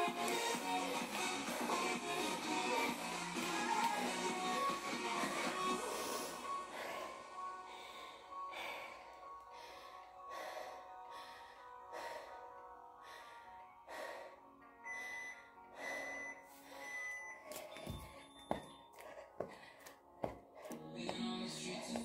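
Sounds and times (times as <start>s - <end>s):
background music: 0.0s - 22.0s
woman panting hard: 5.8s - 14.5s, 18.9s - 20.8s.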